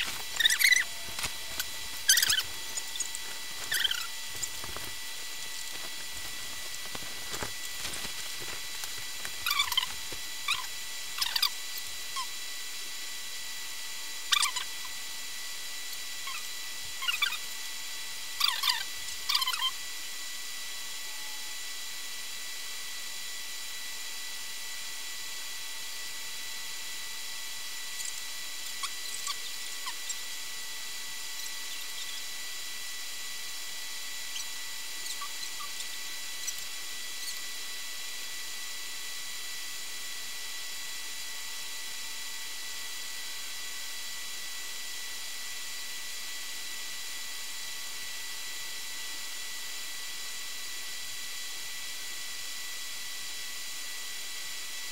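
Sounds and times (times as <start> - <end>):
camera recording hiss and whine: 0.0 - 54.9
faint high chirps: 1.6 - 4.6.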